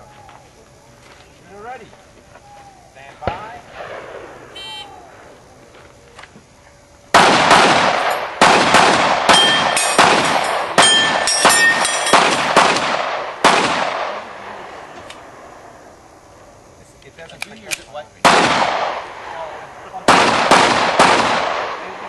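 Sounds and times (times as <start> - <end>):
pistol shots with echo: 3.2 - 4.4, 7.1 - 14.6, 17.7 - 22.0.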